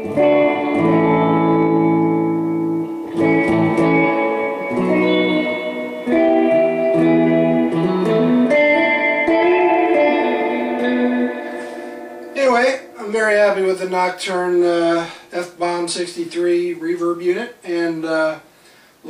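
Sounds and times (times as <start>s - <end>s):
electric guitar with spring reverb: 0.0s - 13.6s.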